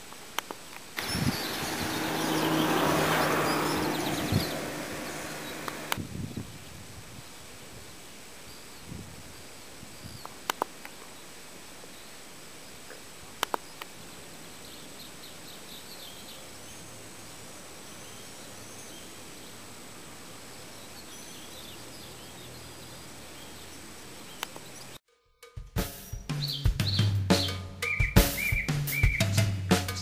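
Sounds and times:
steady background hiss: 0:00.0 - 0:25.0
small birds chirping: 0:00.4 - 0:07.4, 0:08.0 - 0:25.0, 0:26.2 - 0:30.0
sharp clicks: 0:10.2 - 0:11.0, 0:13.4 - 0:13.9, 0:24.4 - 0:24.7.

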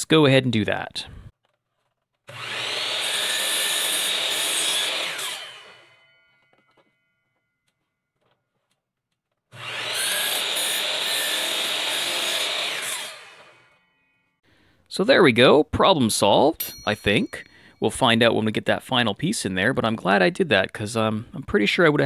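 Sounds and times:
electric miter saw cutting: 0:02.3 - 0:07.1, 0:09.5 - 0:14.4.

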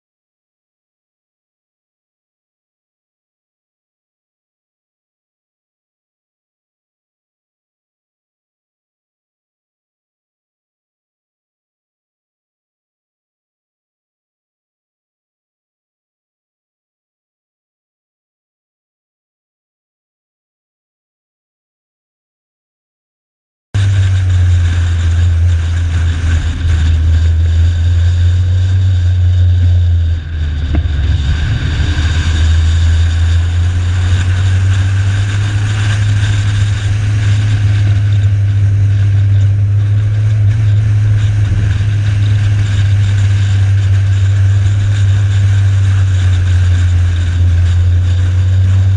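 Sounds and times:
car engine and wind drone: 0:23.8 - 0:48.9.

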